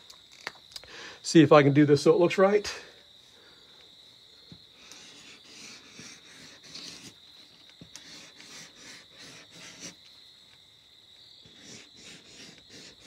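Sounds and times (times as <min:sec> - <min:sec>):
marker scratching on paper: 0:04.8 - 0:10.0, 0:11.4 - 0:13.0.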